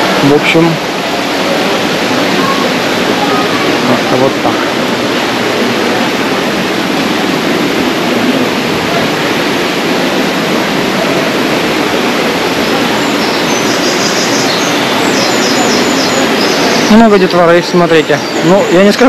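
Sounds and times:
water rushing in gorge: 0.0s - 19.0s
bird chirping: 12.9s - 18.8s.

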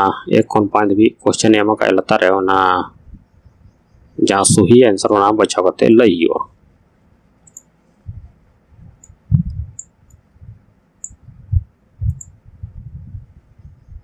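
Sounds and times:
mouse clicking: 7.4s - 7.7s, 11.0s - 11.2s, 12.1s - 12.4s
soft low thumps: 8.0s - 14.0s.

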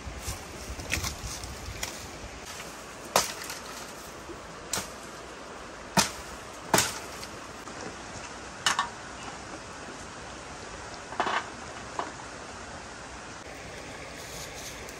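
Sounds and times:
campfire crackling: 0.0s - 8.0s, 13.4s - 14.9s
low hiss: 0.0s - 14.9s.

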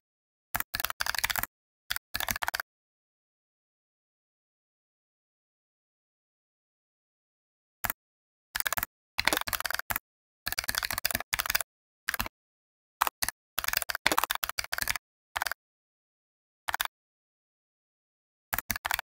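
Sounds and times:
computer keyboard typing: 0.6s - 2.6s, 8.6s - 12.3s, 13.0s - 15.6s, 16.7s - 16.9s, 18.5s - 19.0s.

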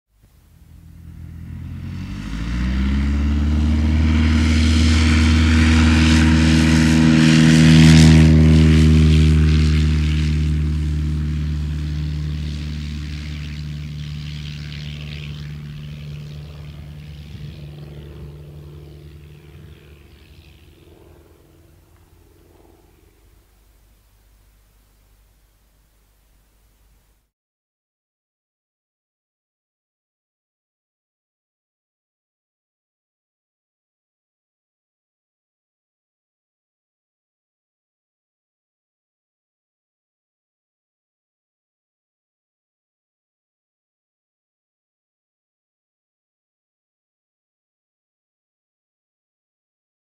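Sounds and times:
light aircraft engine and propeller: 0.2s - 27.3s.

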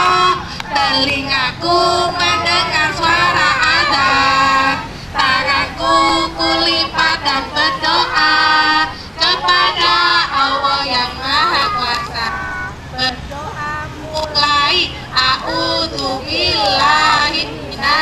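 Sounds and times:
children and woman singing: 0.0s - 18.0s.

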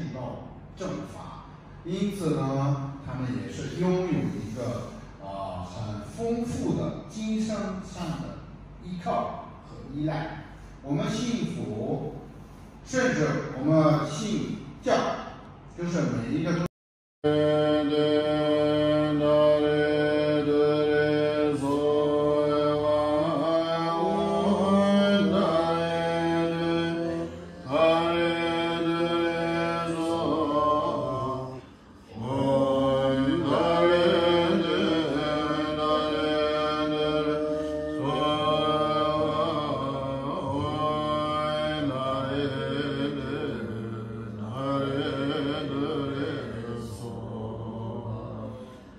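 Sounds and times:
mantra chanting in long notes: 17.2s - 48.9s.

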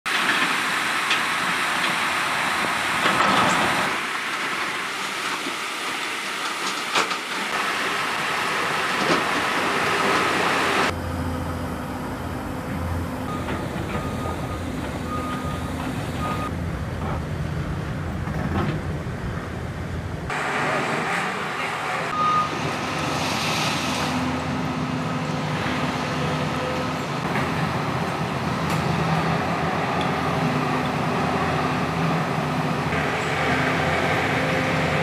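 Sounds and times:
heavy machinery running: 0.1s - 35.0s
low engine rumble: 10.9s - 21.0s
reversing beeps: 13.3s - 16.5s, 22.1s - 22.6s.

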